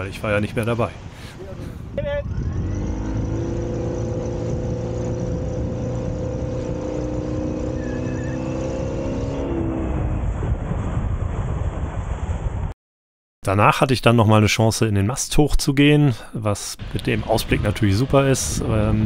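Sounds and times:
outboard motor running: 2.4 - 8.6.

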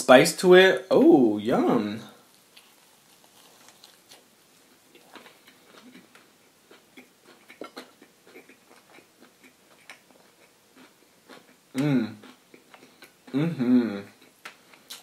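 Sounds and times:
person chewing crunchy food: 2.2 - 15.0.

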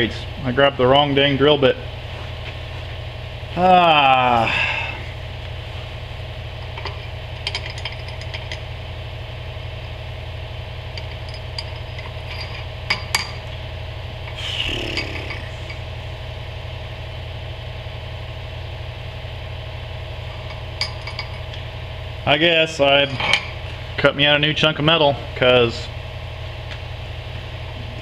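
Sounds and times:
drill press motor running: 11.0 - 16.2.

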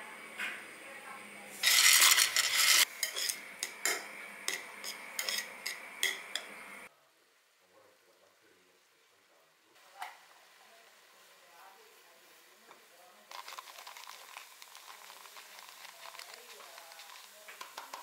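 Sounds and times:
cutlery clinking on ceramic bowl: 2.1 - 6.5.

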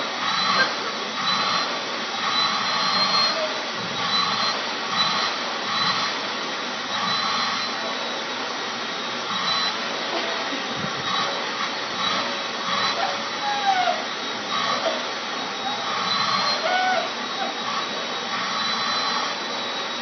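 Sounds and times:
vacuum cleaner running: 0.0 - 20.0.

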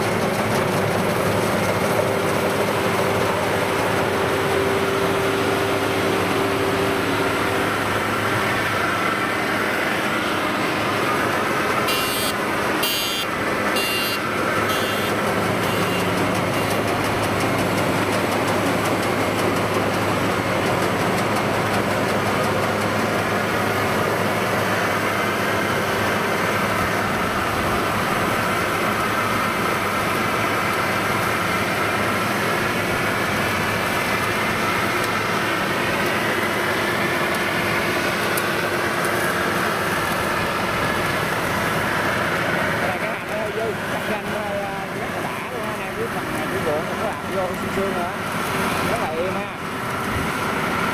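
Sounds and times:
combine harvester running: 0.0 - 50.9.

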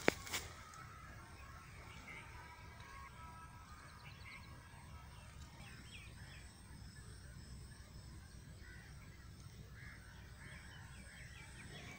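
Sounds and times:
faint birds chirping: 0.0 - 11.9.

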